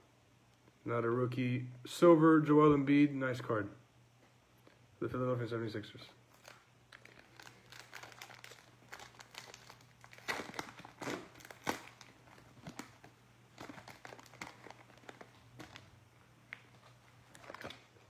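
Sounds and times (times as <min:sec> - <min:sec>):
foil pack crinkling and tearing: 0:06.3 - 0:18.0.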